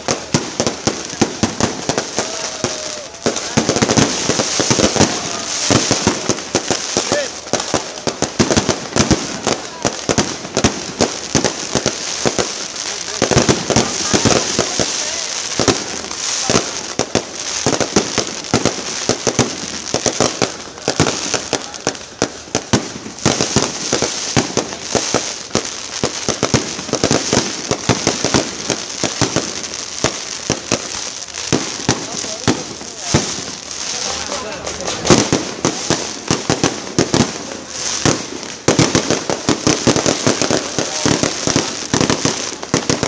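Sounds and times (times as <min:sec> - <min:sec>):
fireworks crackling: 0:00.0 - 0:43.0
fireworks popping and banging: 0:00.0 - 0:43.0.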